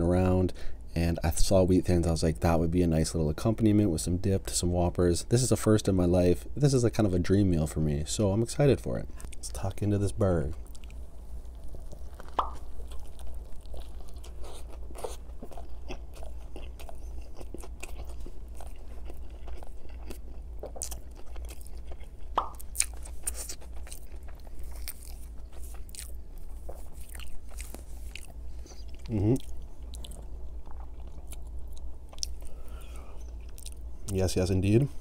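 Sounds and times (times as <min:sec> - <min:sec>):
chewing burger: 0:10.4 - 0:34.2.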